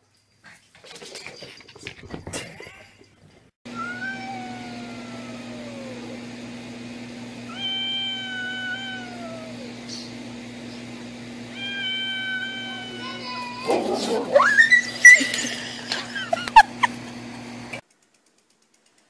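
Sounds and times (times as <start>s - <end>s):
cat yowling: 3.7s - 6.2s, 7.5s - 10.1s, 11.5s - 15.4s.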